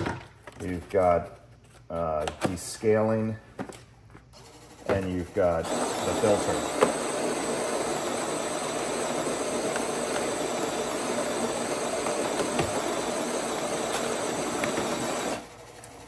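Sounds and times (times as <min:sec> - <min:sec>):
coffee grinder running: 0:05.4 - 0:16.0.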